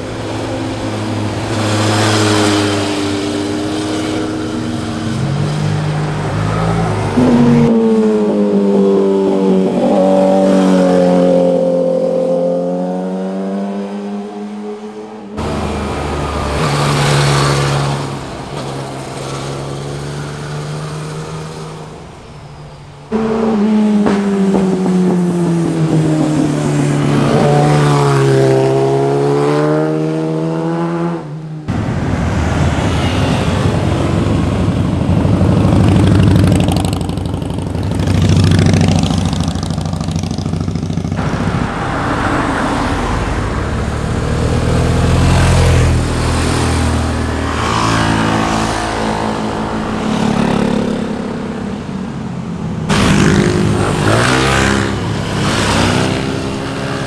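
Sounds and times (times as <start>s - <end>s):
motorcycles passing: 0.0s - 57.0s
motorcycle low rumble: 20.9s - 29.3s, 31.7s - 42.0s.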